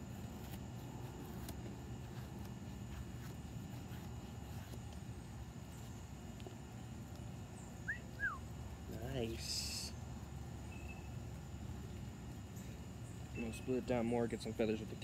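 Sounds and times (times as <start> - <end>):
low outdoor rumble: 0.0 - 15.0
bird chirps: 7.6 - 8.5, 10.6 - 11.2, 12.5 - 14.4.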